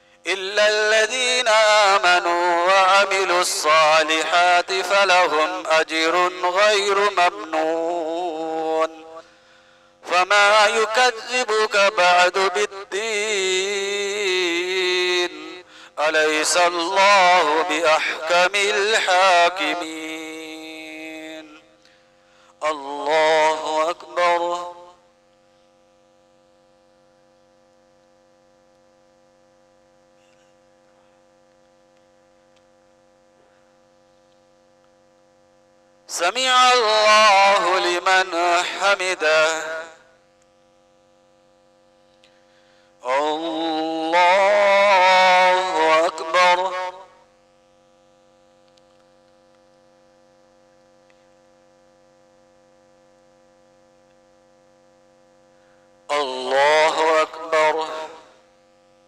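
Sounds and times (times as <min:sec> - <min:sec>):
faint electrical hum: 0:00.0 - 0:59.0
faint clicks: 0:48.6 - 0:49.8.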